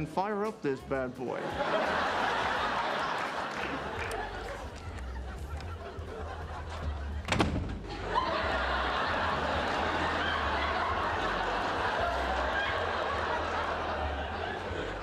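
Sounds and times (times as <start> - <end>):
studio audience laughing: 1.4 - 15.0
door banging shut: 7.2 - 7.9.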